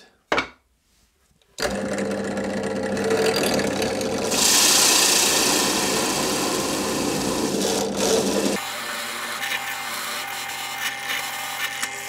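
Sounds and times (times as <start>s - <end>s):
drill press motor humming: 1.6s - 8.8s
boring bit cutting with hiss: 4.3s - 12.0s.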